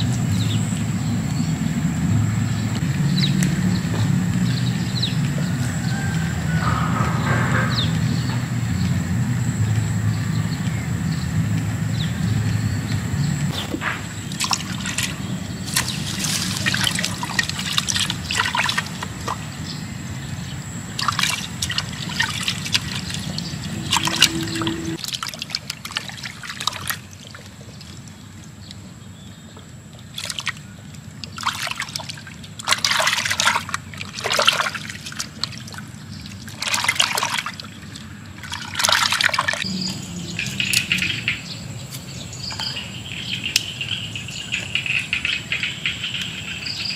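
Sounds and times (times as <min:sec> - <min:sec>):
water sloshing and splashing: 0:13.5 - 0:45.6.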